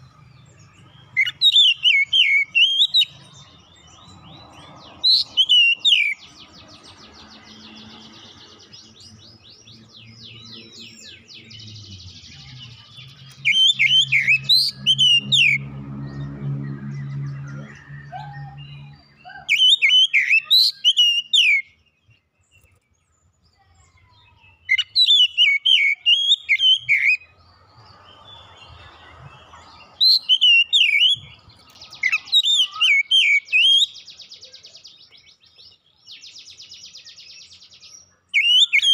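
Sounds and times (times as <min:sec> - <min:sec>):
bird whistled song phrases: 0:01.2 - 0:03.2, 0:05.1 - 0:06.3, 0:09.8 - 0:15.6, 0:17.4 - 0:21.9, 0:24.0 - 0:27.3, 0:29.5 - 0:38.9
low hum: 0:11.1 - 0:19.2.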